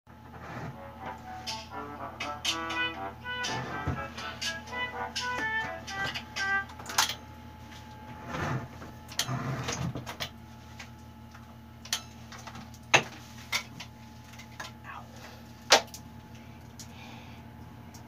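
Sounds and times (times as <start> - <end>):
steady low hum: 0.1 - 18.0.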